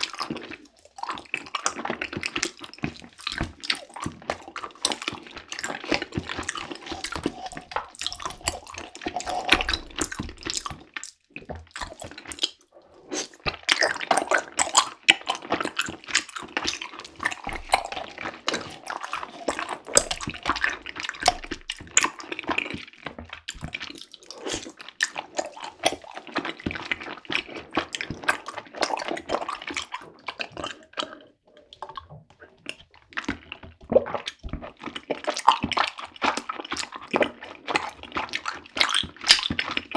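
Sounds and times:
chewing tapioca pearls: 0:00.0 - 0:39.9
slurping through a straw: 0:00.0 - 0:39.9.

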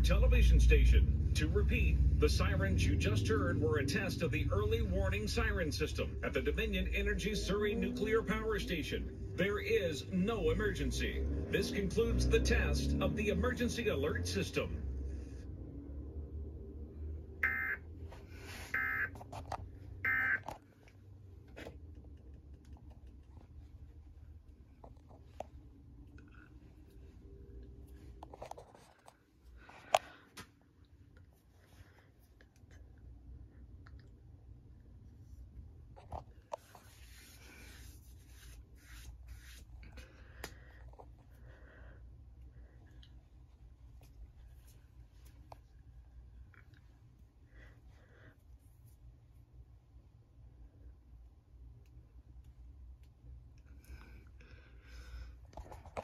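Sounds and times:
steady low hum: 0:00.0 - 0:56.0
handling rubbing and scraping: 0:35.1 - 0:40.0.

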